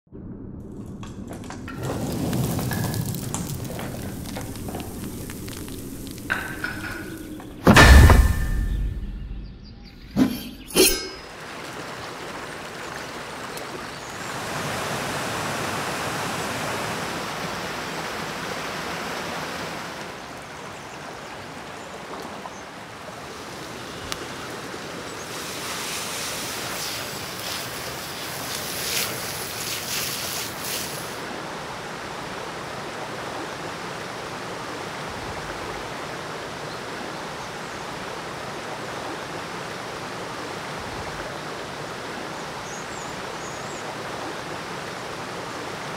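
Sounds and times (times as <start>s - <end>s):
frying pan crackling hiss: 1.8s - 6.8s, 25.2s - 31.2s
shallow river rushing: 1.8s - 8.3s, 10.2s - 45.9s.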